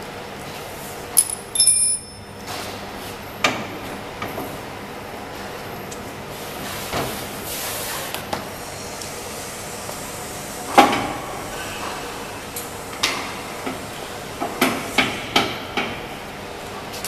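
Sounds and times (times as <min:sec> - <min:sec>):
steady background hum: 0:00.0 - 0:17.0
ringing metal clink: 0:01.2 - 0:02.3.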